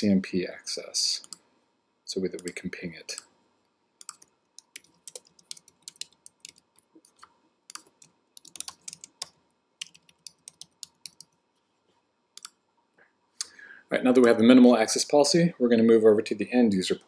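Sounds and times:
computer keyboard typing: 2.4 - 3.2, 4.0 - 11.4.

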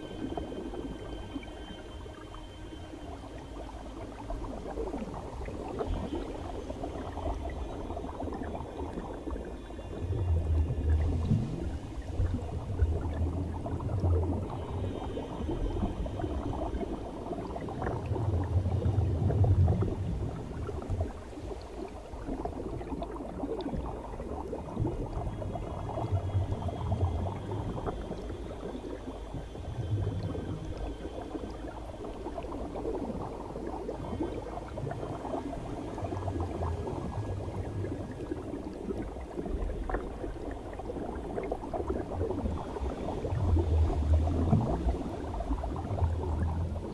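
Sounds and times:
underwater bubbling: 0.0 - 46.9.

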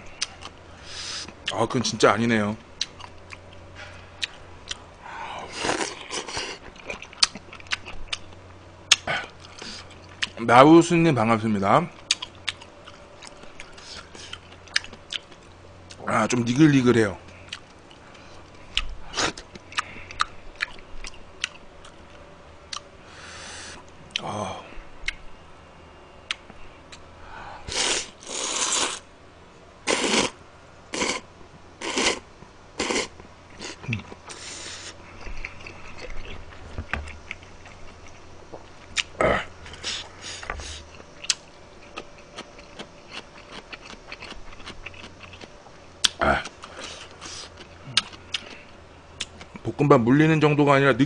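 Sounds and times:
man chewing food: 0.0 - 1.6, 2.7 - 10.4, 11.9 - 16.1, 17.2 - 24.3, 26.2 - 29.0, 29.9 - 49.6
breathy hiss: 0.7 - 1.4, 5.0 - 6.6, 23.0 - 24.8, 27.2 - 29.1, 29.8 - 35.2, 39.2 - 40.9, 46.2 - 47.6.

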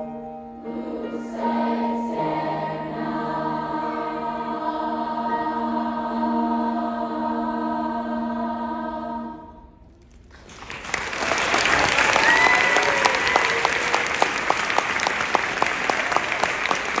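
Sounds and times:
choir with piano chord: 0.0 - 9.8
hands clapping close by: 10.1 - 17.0
audience applause: 10.2 - 17.0
person cheering: 11.7 - 14.3.

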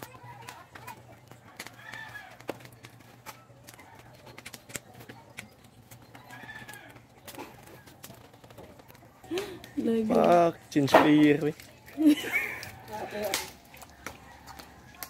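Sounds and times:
arching animal calls: 0.0 - 9.8.

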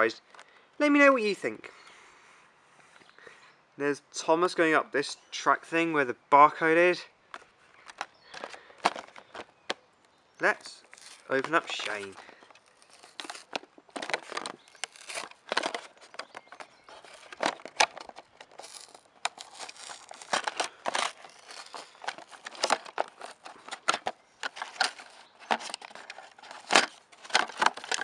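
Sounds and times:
packaging crinkling and tearing: 10.8 - 28.0
sharp clicks and scrapes: 10.8 - 28.0.

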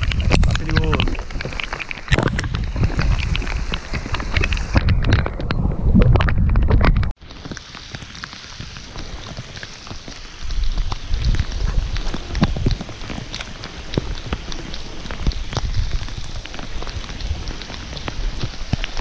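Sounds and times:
wind buffeting microphone: 0.0 - 7.2, 10.2 - 19.0
water splashes: 0.0 - 19.0
steady hiss: 7.2 - 19.0.

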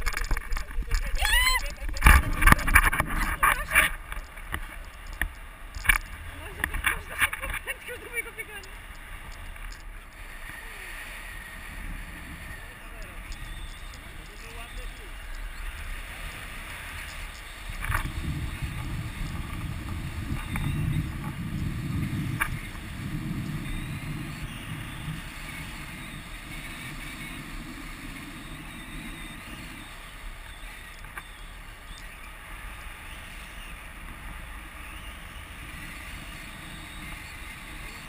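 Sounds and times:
wind rushing over microphone: 0.0 - 38.0.

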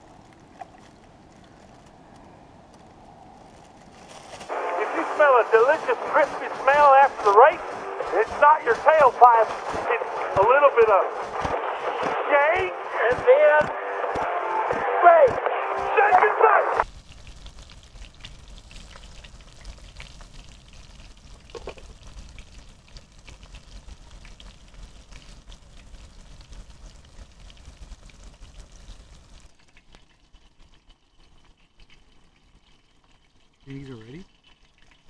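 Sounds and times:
fish frying in hot oil: 16.8 - 35.0.

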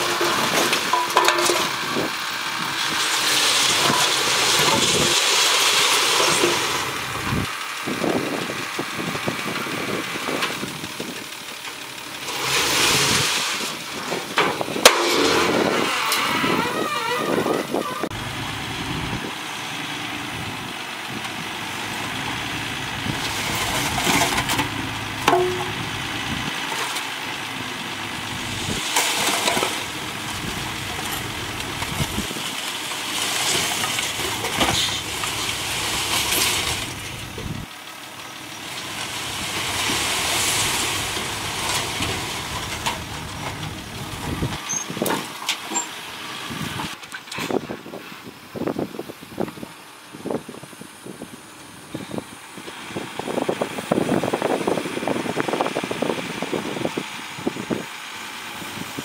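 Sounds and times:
dirt and rocks sliding out: 0.0 - 10.7, 12.2 - 18.3, 21.5 - 37.7, 38.4 - 47.7
diesel truck engine running: 0.0 - 59.0.

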